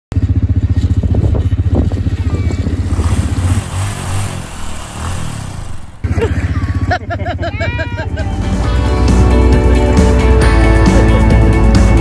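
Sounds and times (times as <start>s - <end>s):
small atv engine running: 0.1s - 8.2s.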